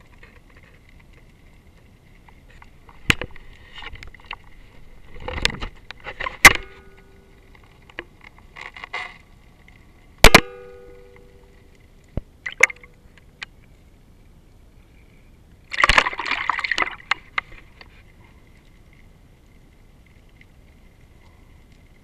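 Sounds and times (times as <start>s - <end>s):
bubbly crackling: 15.6s - 22.0s.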